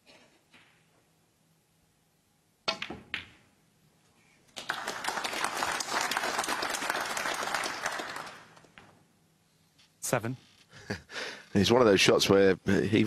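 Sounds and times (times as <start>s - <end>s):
balls clacking together: 2.6s - 3.5s
cue striking ball: 2.7s - 3.5s
audience applause: 4.6s - 8.6s.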